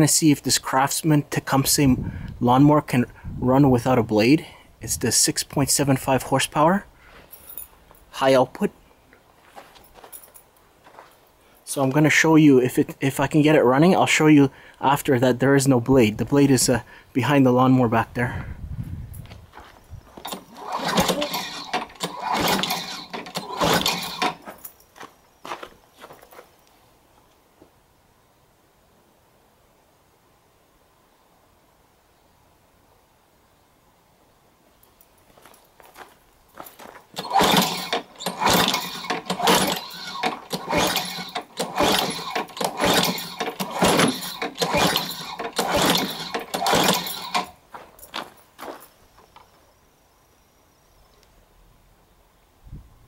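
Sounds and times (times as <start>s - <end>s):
engine turning over: 20.1s - 24.7s, 37.1s - 47.6s
recoil starter rattling: 20.2s - 24.7s, 37.1s - 47.6s.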